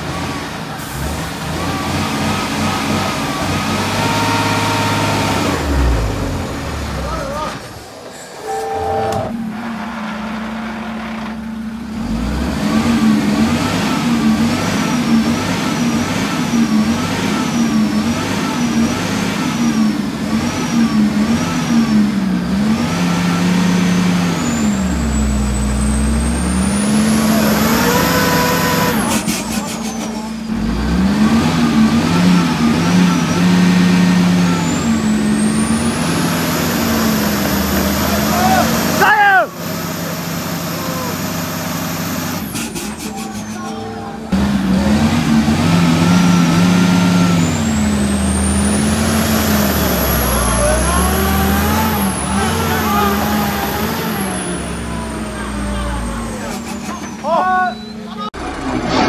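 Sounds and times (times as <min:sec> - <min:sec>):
diesel truck engine under load: 0:00.0 - 0:59.0
turbocharger whistle: 0:03.3 - 0:05.6, 0:08.4 - 0:09.4.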